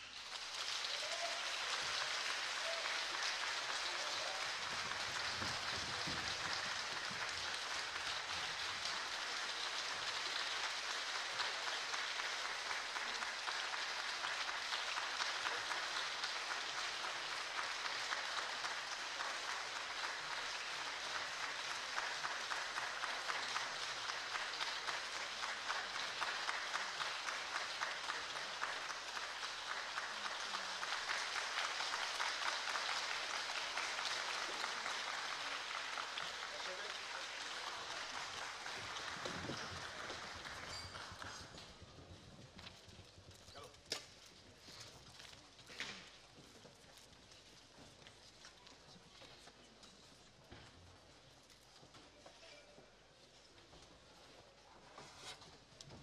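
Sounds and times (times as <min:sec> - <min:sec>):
audience applauding: 0:00.0 - 0:41.8.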